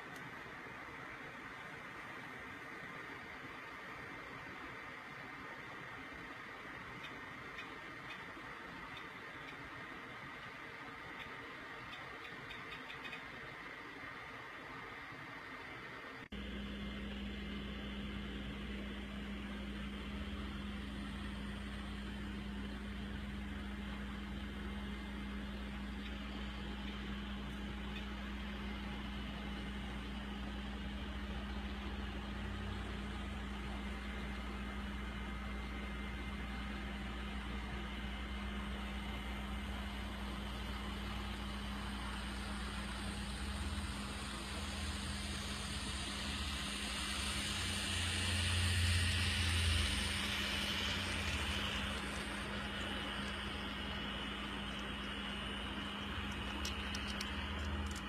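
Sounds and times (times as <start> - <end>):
model train motors humming: 0.0 - 58.0.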